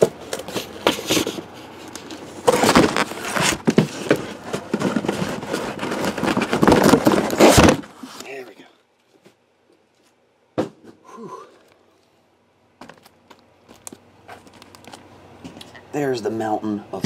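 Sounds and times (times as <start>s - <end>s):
boxes clunking: 0.0s - 8.0s
cardboard scraping and rustling: 0.0s - 8.4s.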